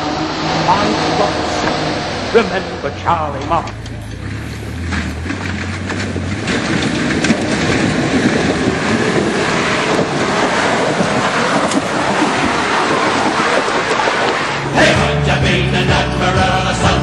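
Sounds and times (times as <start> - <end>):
off-road engine under load: 0.0 - 17.0.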